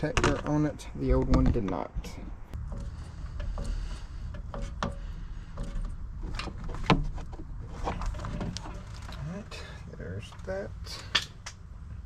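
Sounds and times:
sharp knocks and clicks: 0:00.0 - 0:07.6
rubber hose rubbing and scraping: 0:01.3 - 0:11.0.

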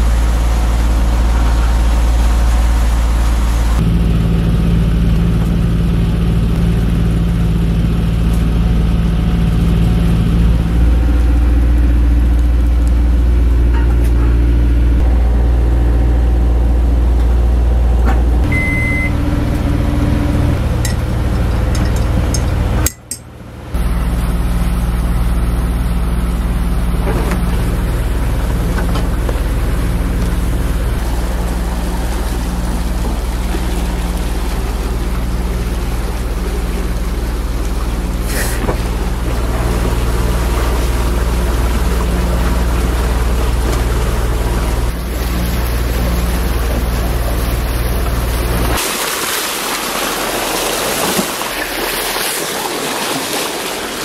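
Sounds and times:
boat engine drone: 0:00.0 - 0:54.0
water rushing along hull: 0:00.0 - 0:54.0
water and wind hiss: 0:20.6 - 0:54.0.

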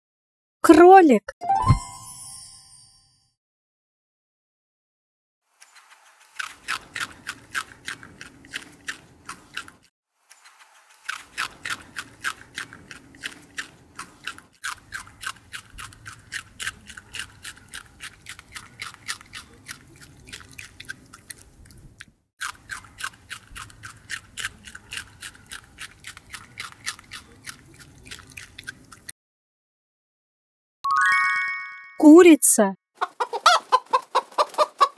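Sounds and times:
rabbit chewing: 0:05.6 - 0:29.1.

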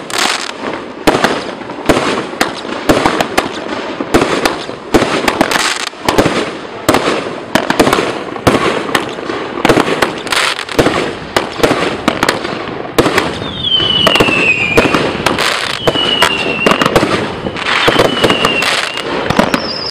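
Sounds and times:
firework crackling: 0:00.0 - 0:19.9
firework launch thumps and bursts: 0:00.2 - 0:12.4
falling firework whistles: 0:13.2 - 0:19.9.

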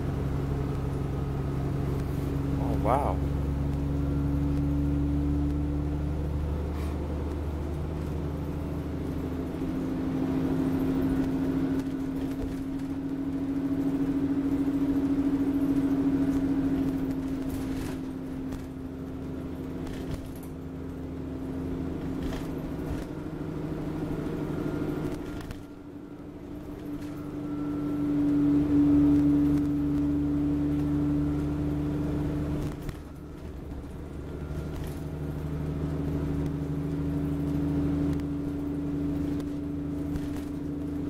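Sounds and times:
bus engine drone: 0:00.0 - 0:41.0
road rumble: 0:00.0 - 0:41.0
light body rattles: 0:10.5 - 0:23.4, 0:32.6 - 0:41.0.

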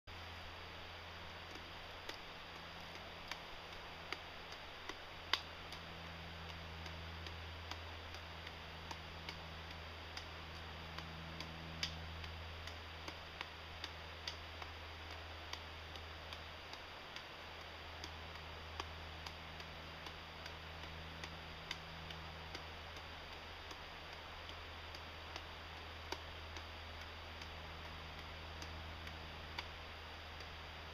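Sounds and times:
steady low hum: 0:00.1 - 0:30.9
juggling clubs clicking in hands: 0:00.7 - 0:30.9.

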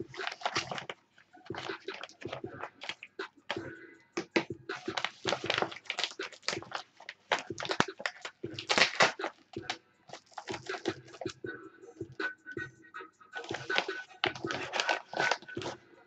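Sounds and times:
padded mailer tearing open: 0:00.2 - 0:00.9, 0:04.8 - 0:09.4, 0:13.4 - 0:15.7.

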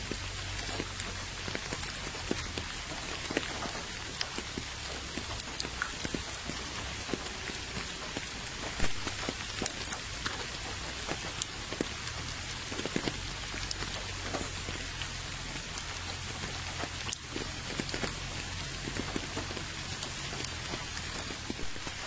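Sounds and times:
rain falling on puddle: 0:00.0 - 0:22.0.

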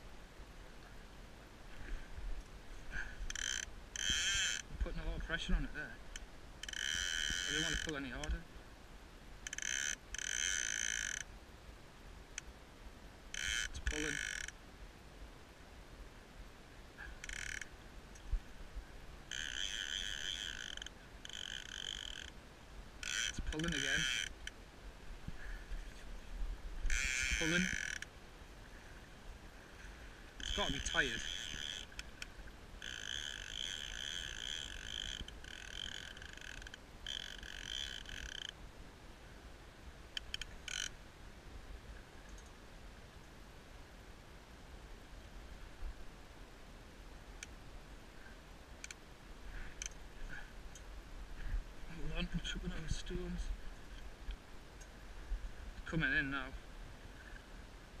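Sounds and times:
fishing reel ratchet buzzing: 0:03.3 - 0:04.6, 0:06.6 - 0:07.9, 0:09.5 - 0:11.2, 0:13.4 - 0:14.5, 0:17.2 - 0:17.7, 0:19.3 - 0:22.3, 0:23.0 - 0:24.4, 0:26.9 - 0:28.1, 0:30.4 - 0:32.1, 0:32.8 - 0:38.5, 0:40.2 - 0:40.9.

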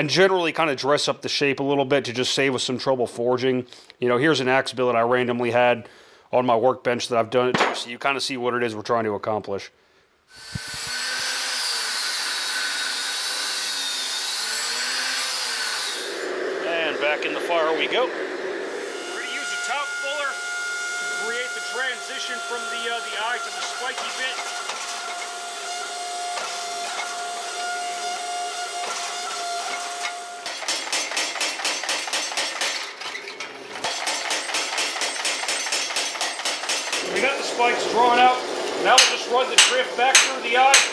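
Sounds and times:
angle grinder cutting metal: 0:10.3 - 0:32.8, 0:33.8 - 0:40.9
hydraulic press whine: 0:10.4 - 0:39.7
power hammer striking hot steel: 0:23.3 - 0:25.4, 0:28.2 - 0:32.9, 0:33.8 - 0:37.4, 0:38.0 - 0:40.9.

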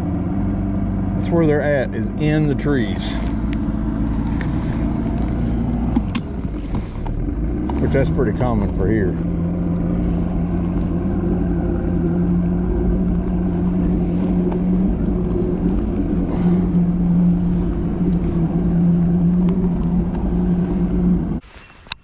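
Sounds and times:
boat motor running: 0:00.0 - 0:21.4.

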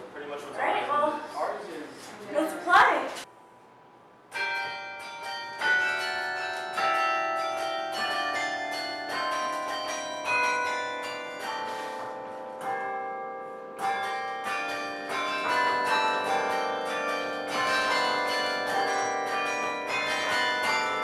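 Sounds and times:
carillon bells playing a tune: 0:04.4 - 0:21.0.

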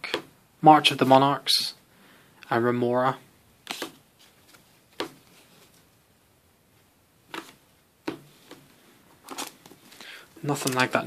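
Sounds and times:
trading cards tapping and rustling: 0:03.7 - 0:05.8, 0:07.3 - 0:11.0.

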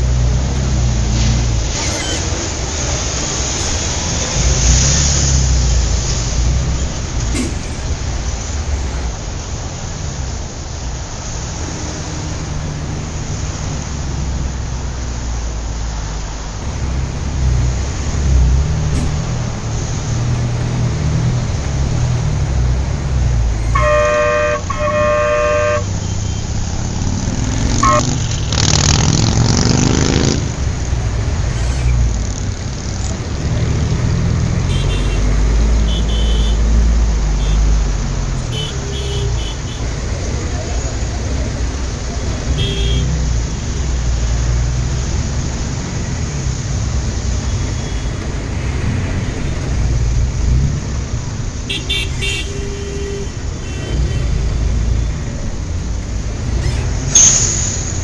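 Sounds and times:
engine and road rumble: 0:00.0 - 0:58.0
engine noise rising in pitch: 0:11.5 - 0:30.8
car horn honks: 0:23.6 - 0:26.6, 0:27.7 - 0:28.3, 0:34.7 - 0:36.7, 0:37.4 - 0:37.7, 0:38.4 - 0:39.9, 0:42.5 - 0:43.2, 0:51.7 - 0:54.4.

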